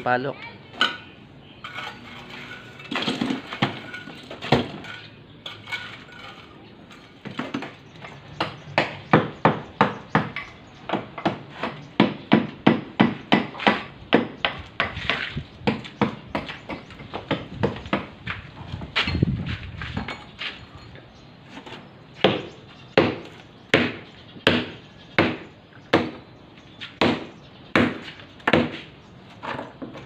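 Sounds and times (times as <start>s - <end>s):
metal blade chipping concrete: 1.7s - 7.2s.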